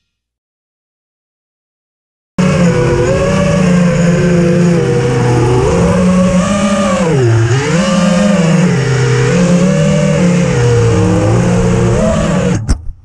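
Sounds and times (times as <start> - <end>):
quadcopter motors whining: 2.4 - 12.6.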